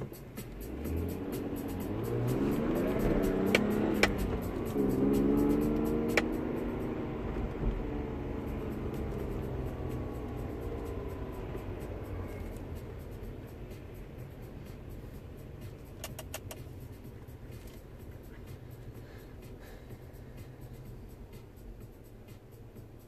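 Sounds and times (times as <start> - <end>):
car engine: 0.0 - 23.0
road rumble: 0.0 - 23.0
quick clicks: 16.0 - 16.7.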